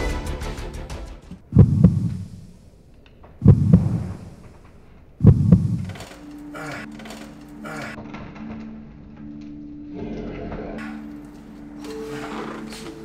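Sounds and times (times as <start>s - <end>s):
heartbeat double thumps: 1.3s - 2.4s, 3.4s - 4.4s, 5.2s - 5.9s.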